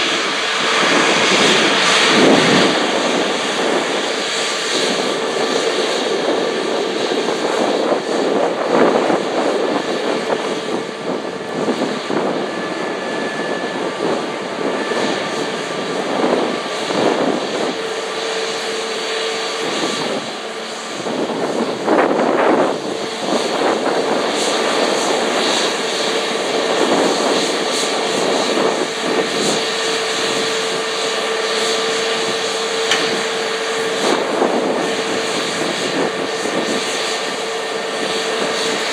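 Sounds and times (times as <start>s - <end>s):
jet engines droning: 0.0s - 38.9s.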